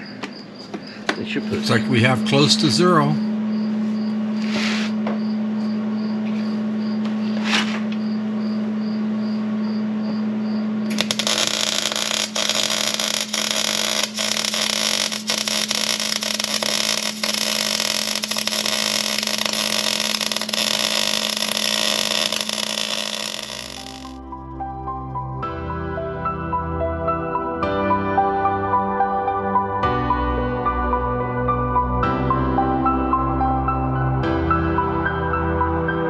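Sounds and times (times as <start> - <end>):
machinery humming: 10.6 - 24.2
loud even hiss: 10.9 - 24.2.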